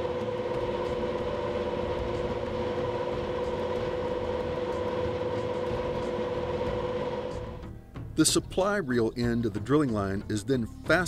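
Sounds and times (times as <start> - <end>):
constant machine whine: 0.0 - 7.6
drum winch mechanical hum: 0.0 - 7.6.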